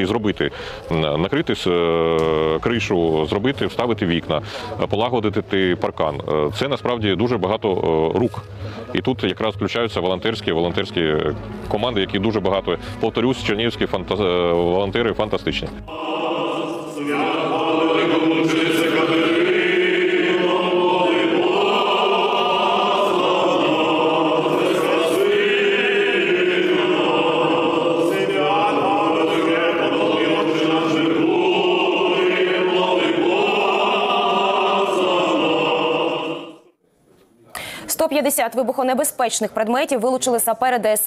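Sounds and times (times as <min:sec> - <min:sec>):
choir singing chant: 0:15.9 - 0:36.8.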